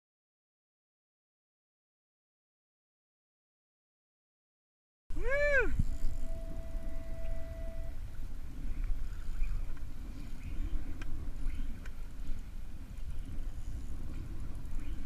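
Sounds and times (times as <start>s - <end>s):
steady high tone: 5.1s - 8.2s
sea water washing around kayak: 5.1s - 15.0s
wind rumbling on microphone: 5.1s - 15.0s
faint clicks: 8.8s - 13.1s.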